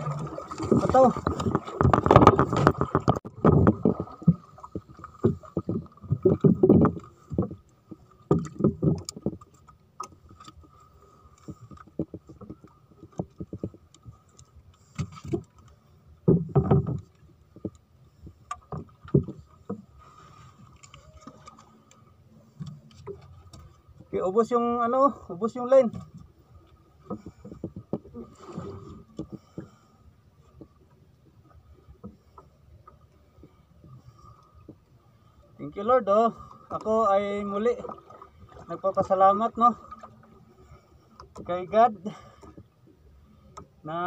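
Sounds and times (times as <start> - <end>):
knocks and thuds on wooden boat: 0.0 - 7.6, 8.3 - 10.2, 16.2 - 17.8, 18.5 - 19.9.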